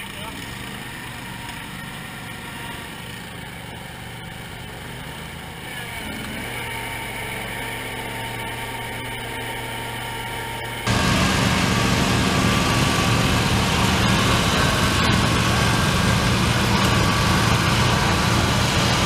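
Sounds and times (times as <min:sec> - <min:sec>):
garden tractor engine running: 0:00.0 - 0:19.0.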